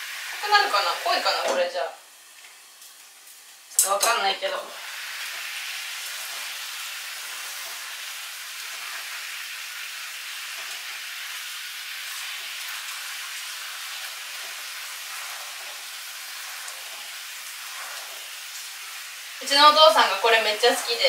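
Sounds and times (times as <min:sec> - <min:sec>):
chicken sizzling in a frying pan: 0:00.0 - 0:21.0
chopsticks stirring: 0:13.7 - 0:21.0.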